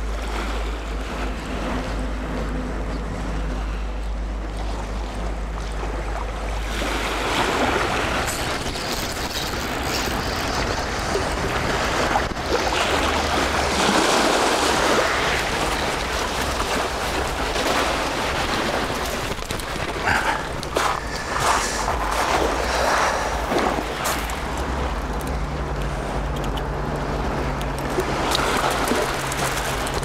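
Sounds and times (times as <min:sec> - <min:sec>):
surf washing on shore: 0:00.0 - 0:30.0
wind gusts on microphone: 0:06.6 - 0:30.0.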